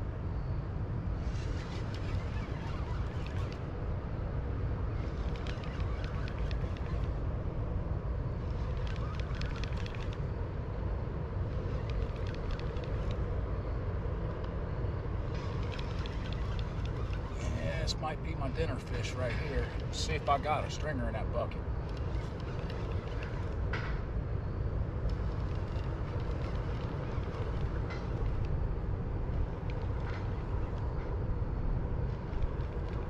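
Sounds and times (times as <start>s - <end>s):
fishing reel clicking: 5.1s - 7.2s, 8.6s - 10.2s, 11.6s - 13.2s, 15.4s - 17.4s, 21.8s - 23.6s.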